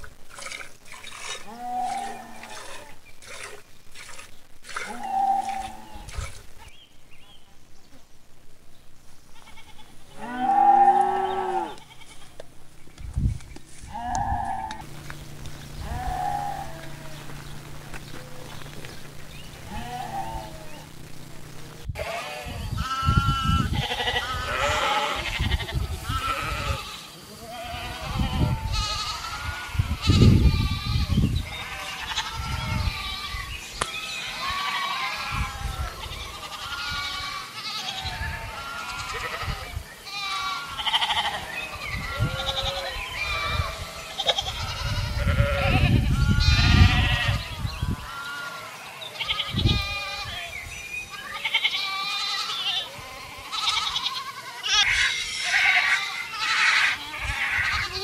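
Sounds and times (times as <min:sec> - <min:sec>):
goats and sheep bleating: 0:01.0 - 0:03.6, 0:04.7 - 0:06.7, 0:09.3 - 0:12.5, 0:13.8 - 0:58.0
low rumbles: 0:12.5 - 0:24.5.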